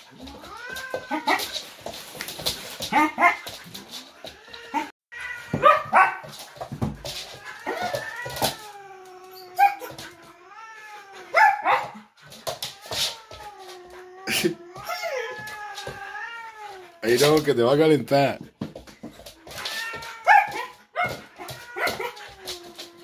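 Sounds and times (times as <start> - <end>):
cat yowling: 0.2 - 1.6, 4.0 - 6.3, 7.2 - 12.0, 12.6 - 17.0, 19.5 - 23.0.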